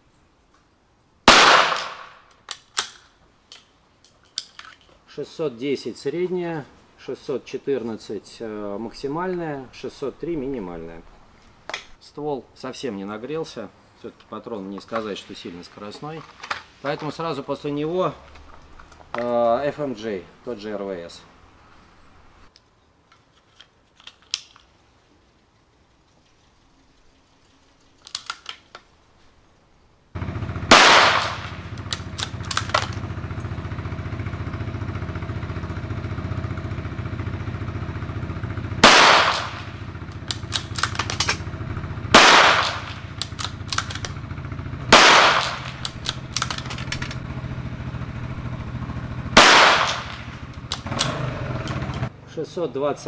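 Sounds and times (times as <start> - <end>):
rifle shots: 1.3 - 2.3, 30.6 - 33.1, 38.8 - 44.2, 44.9 - 47.2, 49.4 - 51.2
rifle bolt clicking: 1.8 - 3.7, 24.0 - 24.7, 28.0 - 28.8, 31.2 - 33.0, 40.2 - 41.4, 42.4 - 44.2, 45.1 - 47.2
steady low hum: 30.0 - 52.2.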